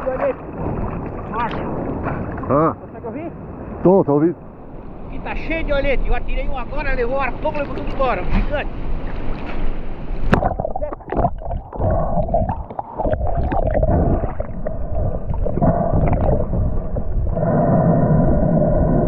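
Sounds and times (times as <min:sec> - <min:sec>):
muffled underwater bubbling: 0:10.3 - 0:19.0
droning hum through water: 0:11.4 - 0:19.0.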